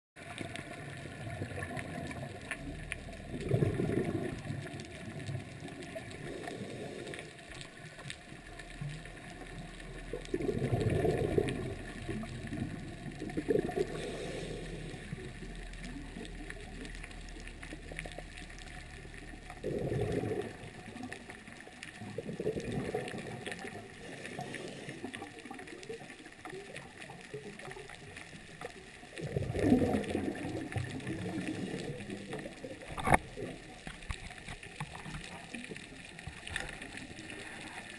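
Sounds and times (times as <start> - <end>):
faint underwater hiss: 0.2 - 37.9
gurgling bubbles: 0.2 - 37.9.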